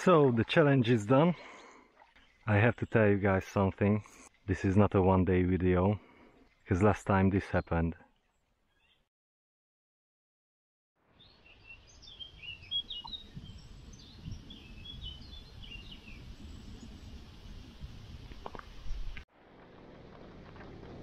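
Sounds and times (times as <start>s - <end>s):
small birds chirping: 7.4s - 9.1s, 11.2s - 19.0s
wind rumble on microphone: 12.4s - 21.0s.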